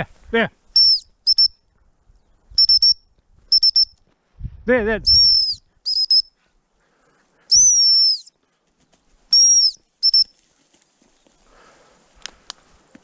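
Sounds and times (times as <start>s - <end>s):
dog whistle blasts: 0.8s - 1.6s, 2.6s - 4.0s, 5.1s - 6.3s, 7.5s - 8.3s, 9.3s - 10.3s
faint rustling in brush: 8.4s - 13.0s.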